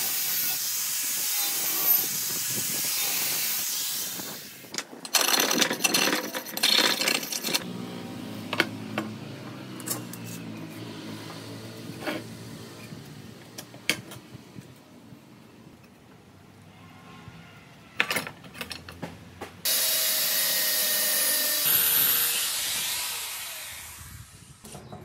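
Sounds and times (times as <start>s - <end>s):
angle grinder cutting metal: 0.0s - 4.7s, 19.7s - 24.4s.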